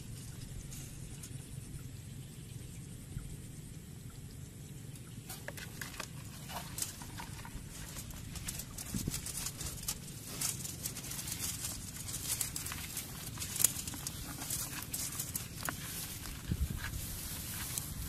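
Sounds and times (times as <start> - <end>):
wire trap clicking and rattling: 5.3 - 16.5.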